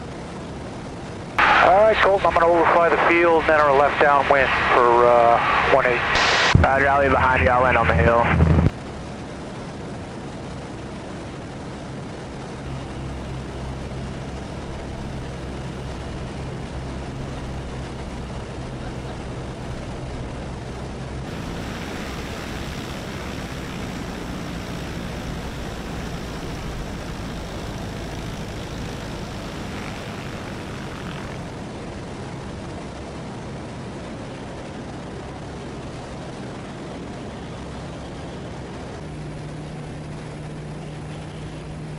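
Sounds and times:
plane engine and propeller: 0.0s - 41.9s
plane rolling across grass: 12.7s - 32.7s.

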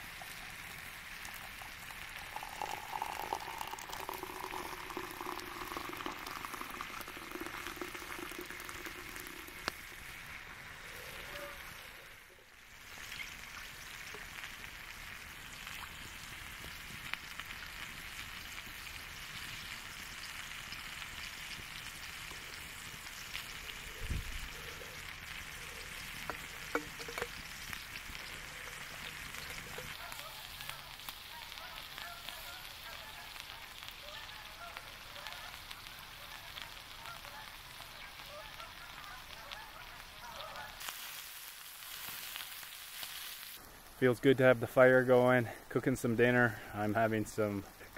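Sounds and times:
food sizzling in a pan: 0.0s - 47.9s
sharp pops: 26.2s - 27.8s.

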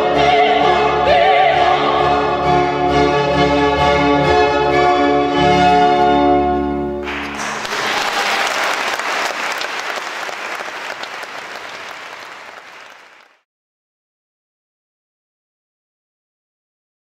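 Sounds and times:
audience applause: 7.0s - 13.4s.

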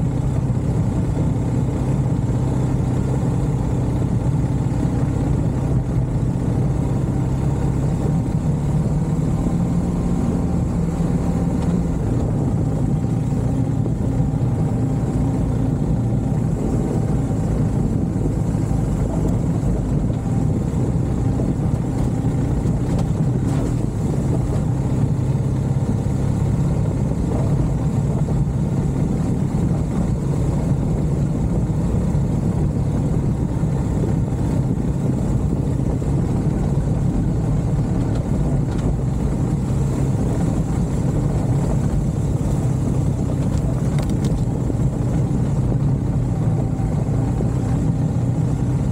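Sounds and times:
vehicle engine running: 0.0s - 48.9s.

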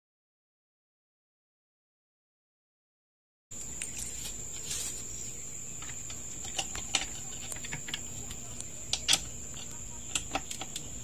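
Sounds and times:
high thin whine: 3.5s - 10.0s
clicks and knocks of metal parts: 5.8s - 11.0s.

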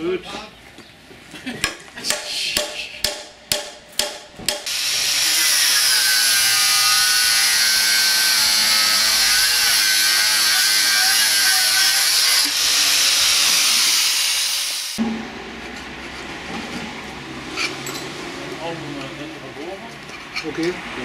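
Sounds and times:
hammer striking wooden beam: 1.6s - 4.8s
angle grinder grinding metal: 4.7s - 15.0s.

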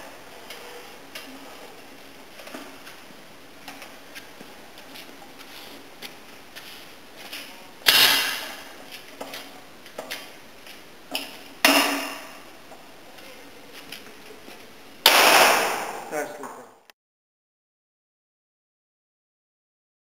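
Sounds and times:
loud ringing bangs: 15.0s - 16.1s.

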